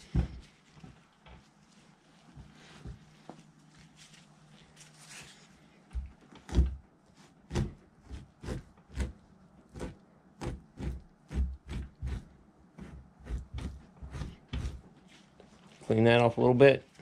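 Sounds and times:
fleshing tool scraping hide: 6.4 - 15.4.

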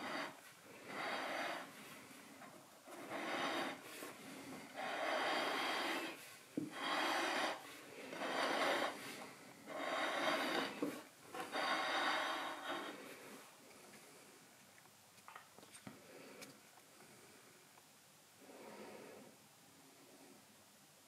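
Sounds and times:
plate scraping on wooden countertop: 4.8 - 9.1, 9.7 - 13.0.

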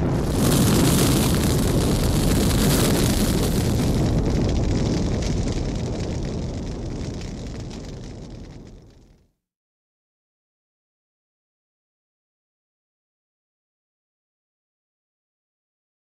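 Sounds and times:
explosion rumble: 0.0 - 9.2
fire burning: 0.0 - 9.3.

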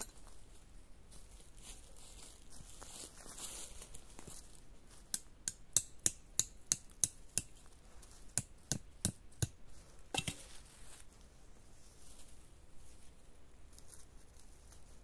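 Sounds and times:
stake being tapped into ground: 5.0 - 10.5.

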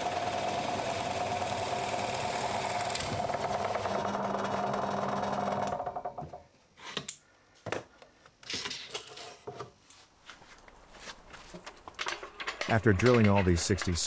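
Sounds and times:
drill press humming: 0.0 - 6.2.

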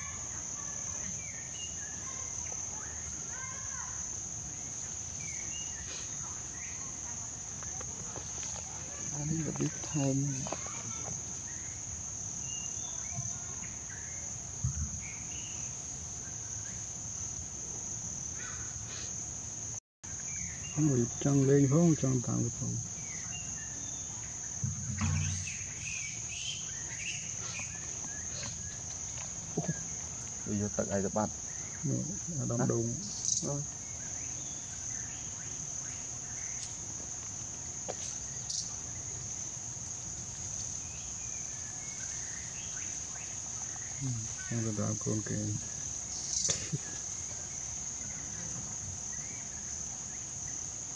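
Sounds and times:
insects droning whine: 0.0 - 50.9
low thump: 24.6 - 25.9
faint short chirping calls: 46.0 - 48.6.

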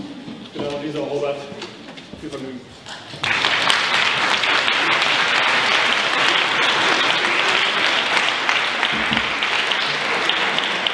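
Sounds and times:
audience applauding in a hall: 2.9 - 10.9.

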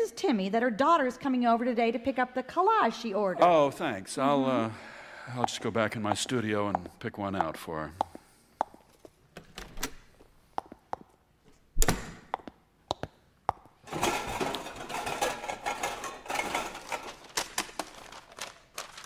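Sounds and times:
clattering and rummaging objects: 13.8 - 19.0.

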